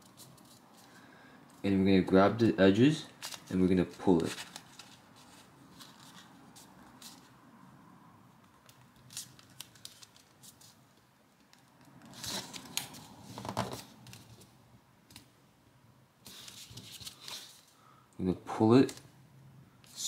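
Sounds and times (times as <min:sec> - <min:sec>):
paper rustling and crinkling: 0:03.1 - 0:07.3, 0:08.7 - 0:10.8, 0:12.0 - 0:14.5, 0:16.2 - 0:17.7.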